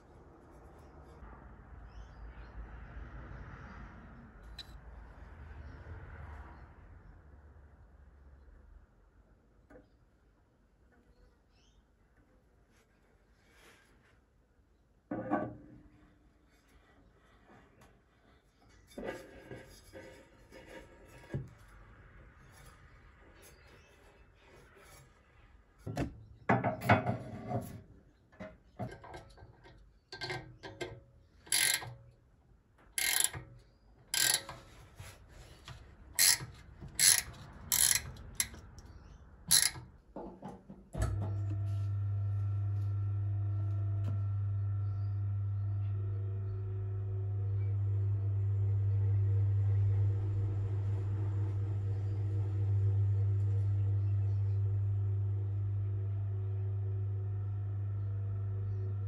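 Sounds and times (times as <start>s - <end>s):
clicks and knocks of hand work: 35.6s - 38.9s, 39.5s - 41.2s.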